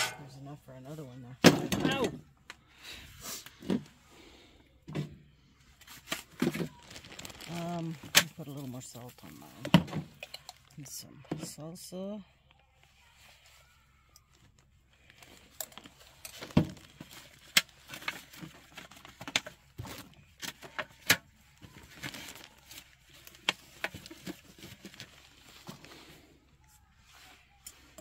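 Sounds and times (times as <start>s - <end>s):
wrapping crinkling: 5.8s - 9.7s, 13.0s - 28.0s.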